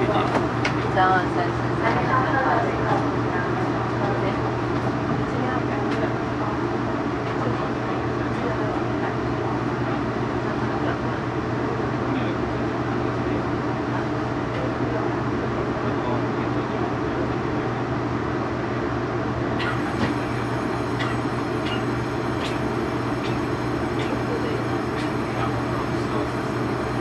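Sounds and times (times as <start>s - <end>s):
passengers murmuring: 0.0s - 27.0s
train cabin low hum: 0.0s - 27.0s
faint high whine with ticks: 19.6s - 27.0s.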